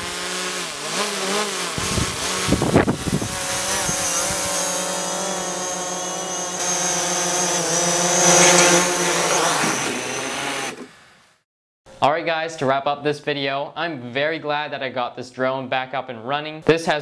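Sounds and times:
drone propellers buzzing: 0:00.0 - 0:11.2.

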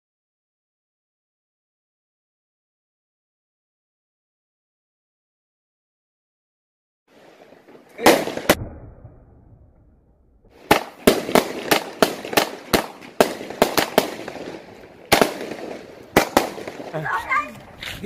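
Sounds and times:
fireworks and firecrackers banging: 0:07.1 - 0:18.0.

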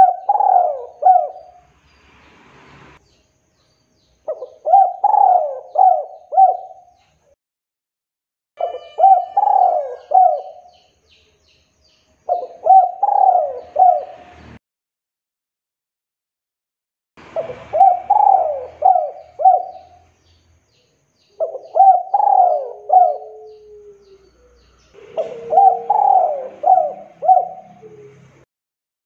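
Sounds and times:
dove cooing: 0:00.0 - 0:01.6, 0:04.3 - 0:07.0, 0:08.6 - 0:10.8, 0:12.3 - 0:14.3, 0:17.4 - 0:20.0, 0:21.4 - 0:28.4.

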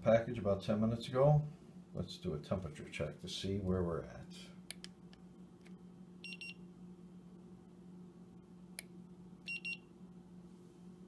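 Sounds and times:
faint low hum: 0:00.0 - 0:11.0
thermometer beeping: 0:06.2 - 0:06.6, 0:09.4 - 0:09.9.

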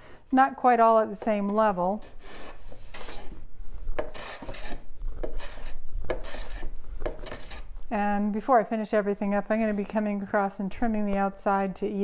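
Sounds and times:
hand plane shaving wood: 0:04.0 - 0:07.7.

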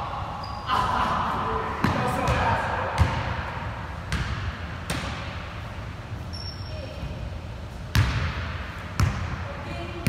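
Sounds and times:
basketball bouncing on wooden floor: 0:09.0 - 0:09.3.

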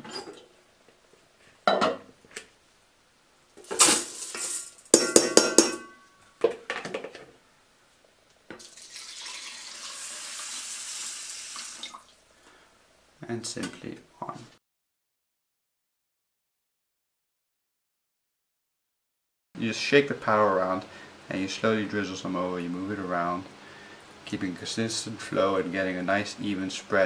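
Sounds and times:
sieve clattering against pot: 0:03.6 - 0:06.0
water pouring into rice: 0:08.6 - 0:12.2.

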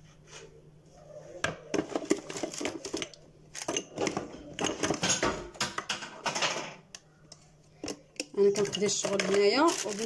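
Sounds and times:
kitchen containers clicking and clattering: 0:01.4 - 0:07.0, 0:07.8 - 0:10.0.

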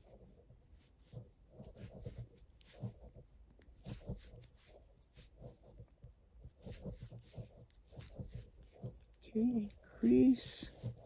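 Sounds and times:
knitting needles clicking: 0:09.0 - 0:10.7.

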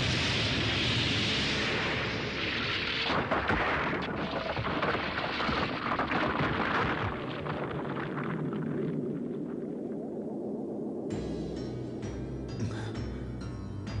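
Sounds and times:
rock breaking and debris falling: 0:00.0 - 0:09.6
rumbling rush: 0:00.0 - 0:13.2.

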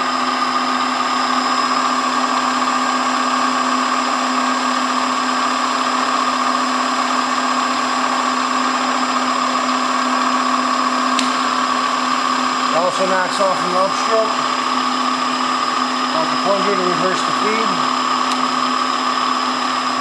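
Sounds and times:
milling machine humming and whining: 0:00.0 - 0:20.0.

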